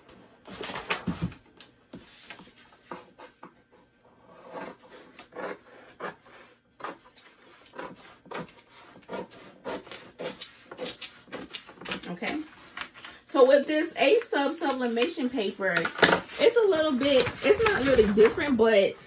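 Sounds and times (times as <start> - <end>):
scissors snipping paper: 6.8 - 13.0.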